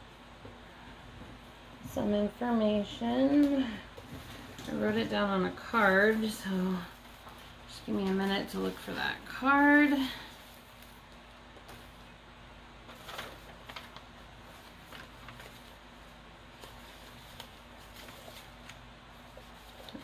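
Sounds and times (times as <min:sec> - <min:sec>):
low steady hum: 0:00.0 - 0:20.0
rustling while rummaging: 0:12.9 - 0:20.0.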